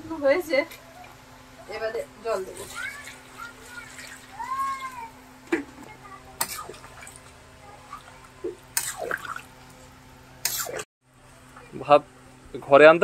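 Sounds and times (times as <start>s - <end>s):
water splashing into a hot pan: 2.5s - 5.1s, 6.4s - 9.6s.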